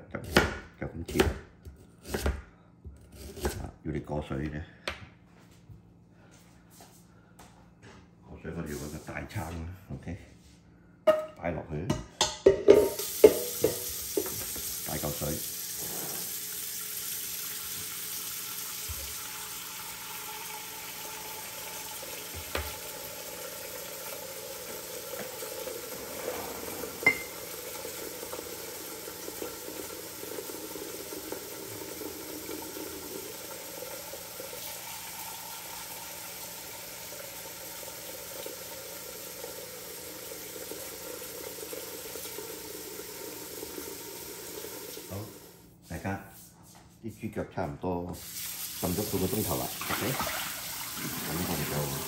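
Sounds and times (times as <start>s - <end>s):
tap water running into pot: 12.7s - 45.5s, 48.2s - 52.0s.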